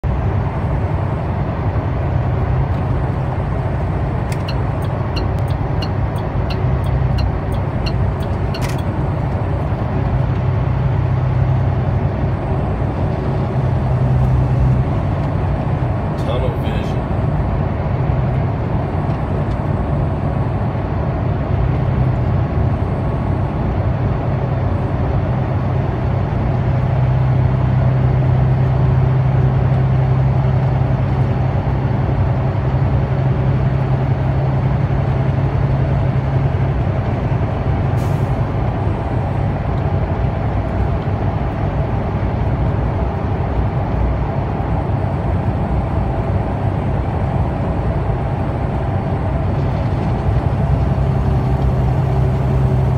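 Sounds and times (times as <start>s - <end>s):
truck engine and road noise: 0.0s - 52.9s.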